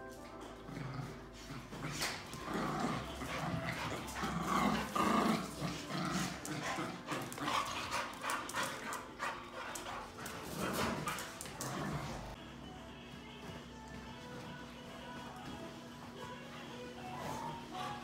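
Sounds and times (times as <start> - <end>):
dogs growling and barking: 0.0 - 12.4.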